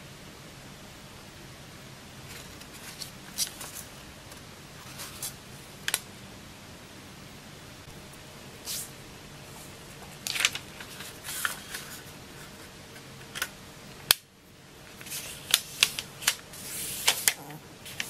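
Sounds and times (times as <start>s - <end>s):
paper rustling and sliding: 9.6s - 12.7s, 14.9s - 18.0s.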